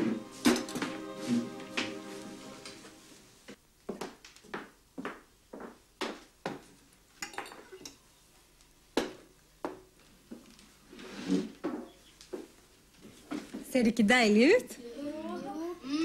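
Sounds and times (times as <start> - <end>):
dishes and cutlery clinking: 0.0 - 2.0, 7.2 - 8.0.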